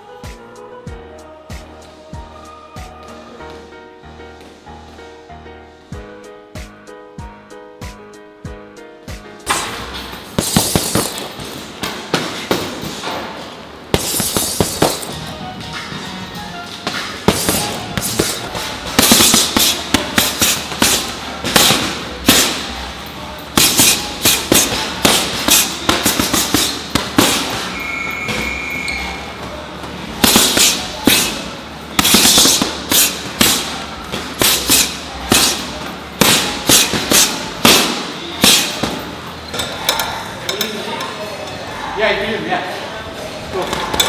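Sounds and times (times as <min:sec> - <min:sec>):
boxing gloves hitting punching bags: 0:09.4 - 0:16.0, 0:16.7 - 0:39.8.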